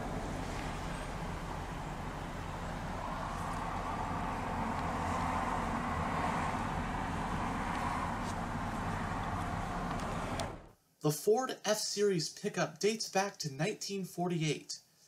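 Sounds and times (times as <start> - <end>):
diesel engine idling: 0.0 - 10.7.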